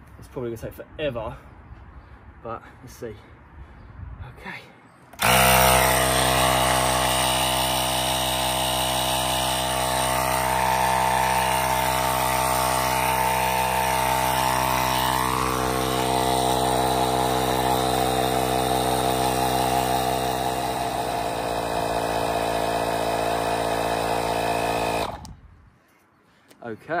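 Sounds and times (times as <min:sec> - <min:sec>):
tyre inflator compressor running: 0:05.2 - 0:25.4.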